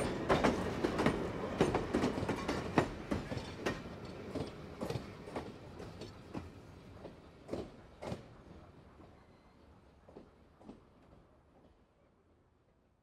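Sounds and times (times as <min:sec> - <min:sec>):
train wheels clacking: 0:00.0 - 0:08.2.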